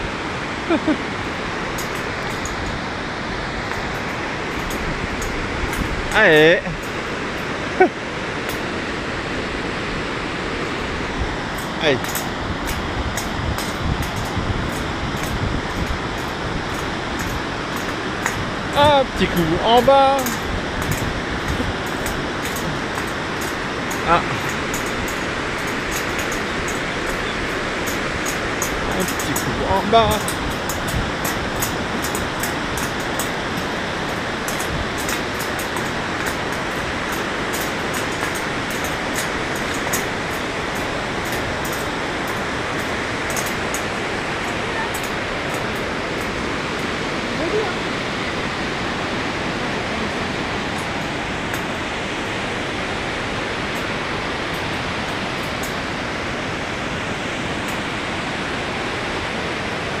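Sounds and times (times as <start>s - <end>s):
wind buffeting microphone: 0.0s - 7.8s, 8.4s - 57.8s
water rushing through gorge: 0.0s - 60.0s
footsteps on steel grating: 1.6s - 7.6s, 11.5s - 47.0s.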